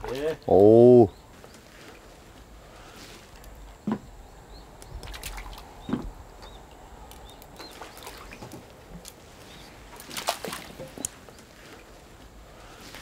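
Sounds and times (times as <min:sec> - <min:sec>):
small splashes and knocks: 0:04.8 - 0:12.0
fish splashing at water surface: 0:07.1 - 0:09.2, 0:09.9 - 0:11.2.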